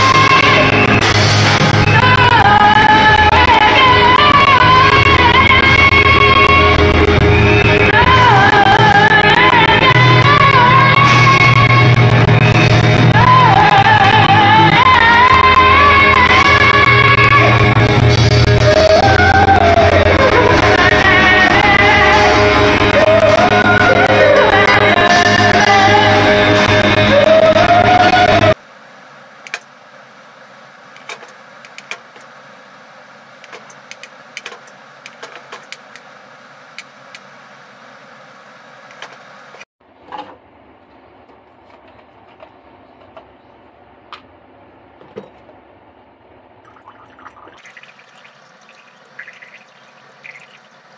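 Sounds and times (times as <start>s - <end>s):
woman singing: 0.0s - 0.9s, 1.8s - 12.2s, 13.0s - 28.6s.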